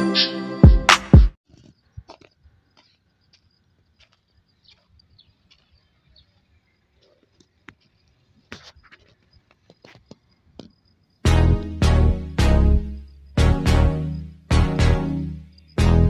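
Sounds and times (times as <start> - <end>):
loud music: 11.3 - 16.0.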